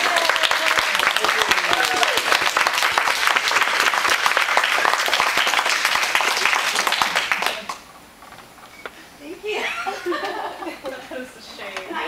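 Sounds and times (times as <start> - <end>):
audience clapping: 0.0 - 8.0.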